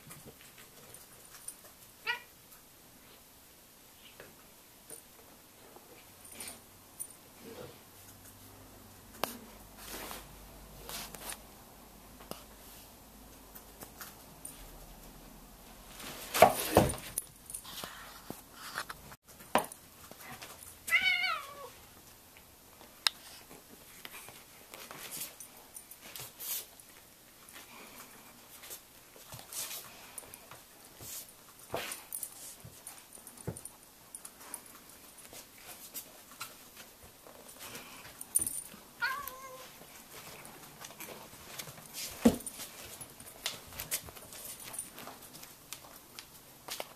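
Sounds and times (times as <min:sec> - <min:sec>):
cat meowing: 0:02.0 - 0:02.3, 0:20.9 - 0:21.8, 0:39.0 - 0:39.7
knocks and bumps from scuffle: 0:16.0 - 0:17.2, 0:42.0 - 0:43.1.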